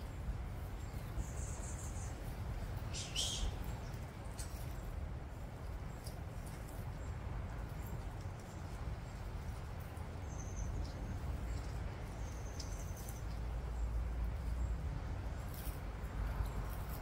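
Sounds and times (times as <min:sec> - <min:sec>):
bird chirps: 0:02.9 - 0:04.6
tortoises chewing grass: 0:03.5 - 0:17.0.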